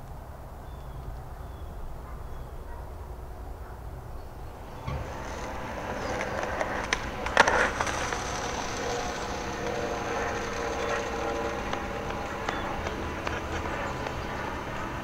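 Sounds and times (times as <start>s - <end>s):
skateboard wheels rolling on concrete: 0.0s - 15.0s
skateboard clattering on pavement: 4.8s - 15.0s.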